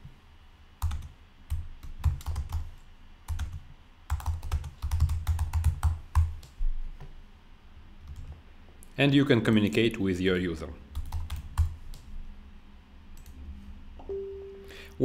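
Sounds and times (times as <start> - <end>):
keyboard typing: 0.8 - 2.7, 3.3 - 6.5, 10.9 - 12.1.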